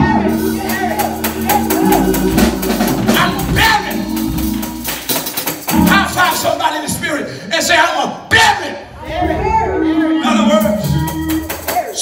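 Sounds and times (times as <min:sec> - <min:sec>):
sustained keyboard chords: 0:00.0 - 0:07.0
drum kit beat: 0:00.0 - 0:07.3, 0:10.4 - 0:12.0.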